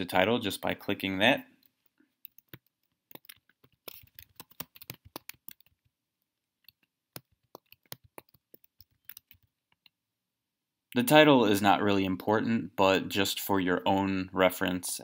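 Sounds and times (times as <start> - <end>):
keyboard typing: 1.6 - 10.0.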